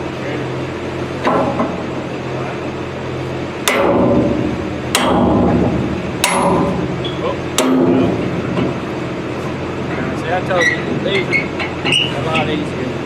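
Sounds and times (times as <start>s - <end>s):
hammer striking metal: 3.6s - 8.8s.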